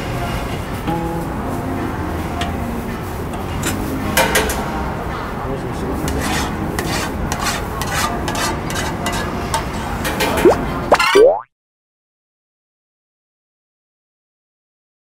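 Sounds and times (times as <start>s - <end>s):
metal utensil scraping a pan: 6.0s - 11.1s.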